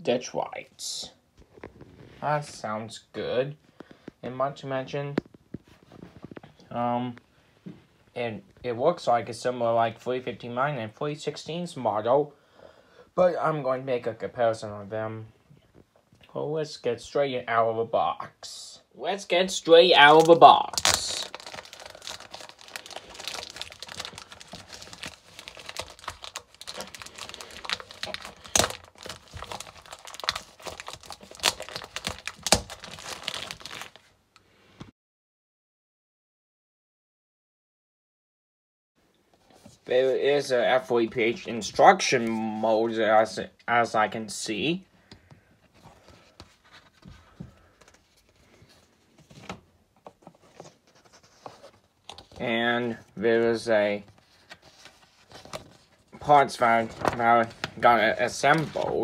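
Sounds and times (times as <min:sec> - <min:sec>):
plastic wrap crinkling: 0:19.9 - 0:34.2, 0:54.2 - 0:59.0
paper and cardboard rustling: 0:20.0 - 0:34.1, 0:45.7 - 0:52.5, 0:53.5 - 0:59.0.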